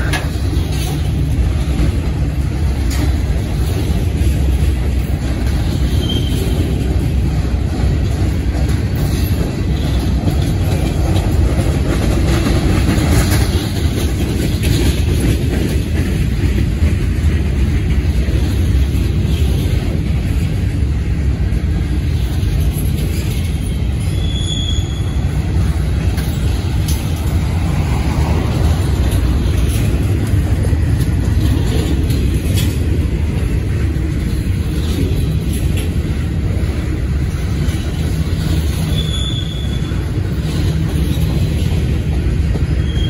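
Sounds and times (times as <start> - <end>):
train wheels rumbling on rails: 0.0 - 43.0
high wheel squeals: 5.9 - 6.6, 23.7 - 25.4, 38.7 - 40.2, 42.7 - 43.0.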